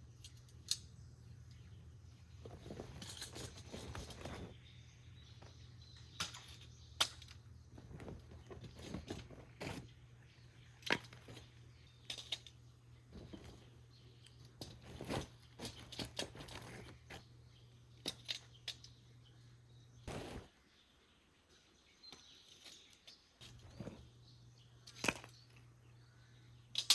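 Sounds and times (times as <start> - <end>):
objects clicking and rustling: 2.4 - 4.6, 10.7 - 17.2, 18.0 - 19.0, 24.8 - 25.7.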